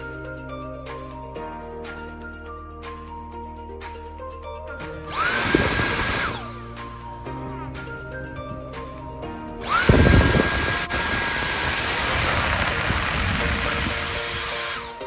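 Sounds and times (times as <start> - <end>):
vacuum cleaner motor whining: 5.1 - 6.6, 9.6 - 15.0.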